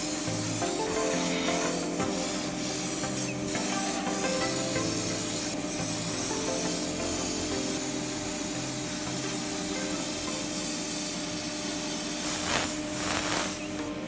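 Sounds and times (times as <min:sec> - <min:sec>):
background music: 0:00.0 - 0:11.2
airbrush hissing: 0:00.0 - 0:13.8.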